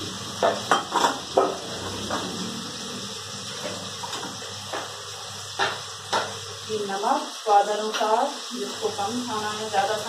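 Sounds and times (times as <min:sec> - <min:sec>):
food sizzling in a pan: 0:00.0 - 0:10.0.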